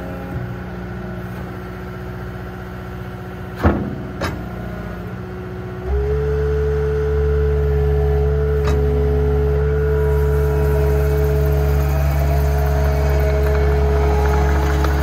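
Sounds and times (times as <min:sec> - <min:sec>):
diesel engine idling: 0:00.0 - 0:15.0
hydraulic whine: 0:05.8 - 0:15.0.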